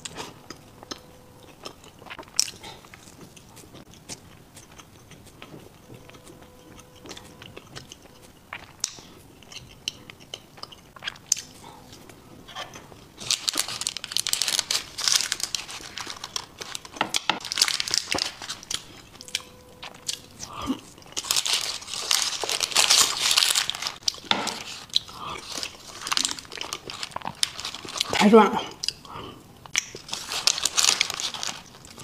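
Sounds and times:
chewing: 0.0s - 32.0s
parchment paper crinkling: 13.2s - 19.0s, 21.2s - 28.3s, 30.0s - 32.0s.

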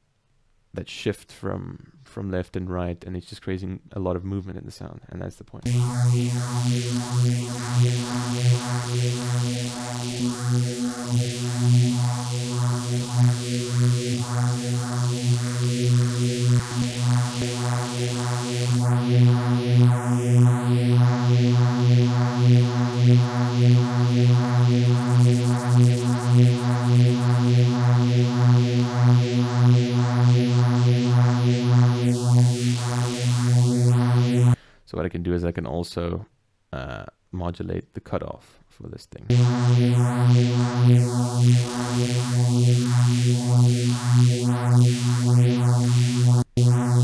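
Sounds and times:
sustained synth bass note: 5.7s - 34.6s, 39.3s - 47.0s.

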